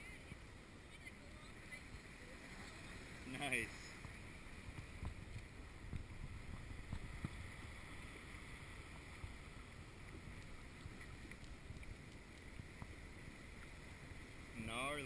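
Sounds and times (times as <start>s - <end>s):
water lapping against kayak: 0.0s - 15.0s
wind buffeting microphone: 4.0s - 8.0s.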